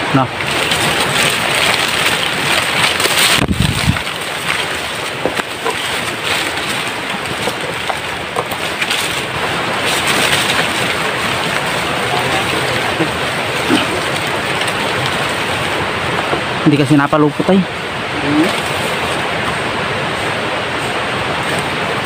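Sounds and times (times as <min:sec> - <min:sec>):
rustling of brush and dry leaves: 0:00.0 - 0:22.0
twigs snapping: 0:00.4 - 0:16.5.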